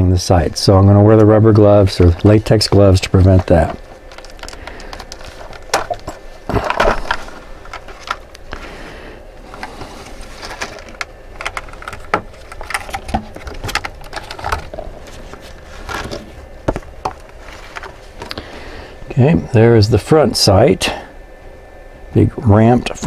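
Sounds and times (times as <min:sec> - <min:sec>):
plastic blister pack crackling: 0:01.4 - 0:08.7, 0:09.4 - 0:18.4.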